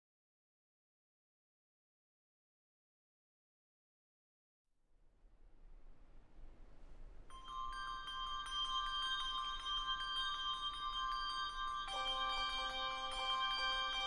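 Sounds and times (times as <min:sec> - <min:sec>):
high handbells ringing: 0:07.3 - 0:14.0
low handbells ringing: 0:07.3 - 0:14.0.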